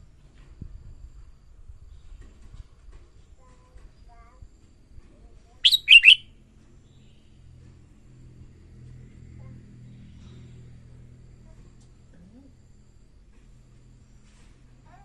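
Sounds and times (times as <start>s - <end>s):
bird singing short phrase: 5.6s - 6.2s.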